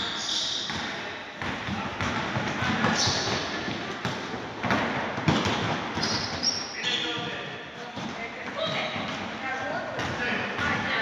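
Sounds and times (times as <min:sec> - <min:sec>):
basketball dribbling on gym floor: 0:00.7 - 0:06.5.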